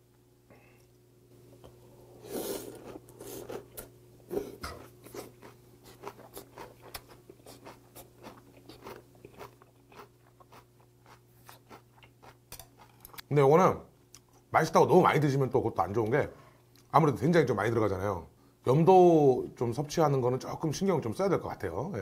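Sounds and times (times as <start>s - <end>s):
crunchy chewing: 1.6s - 13.3s
slurp: 2.2s - 6.0s.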